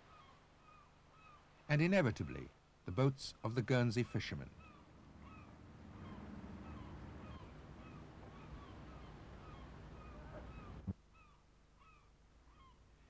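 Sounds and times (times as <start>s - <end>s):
low steady rumble: 3.8s - 11.0s
gulls calling: 3.8s - 12.8s.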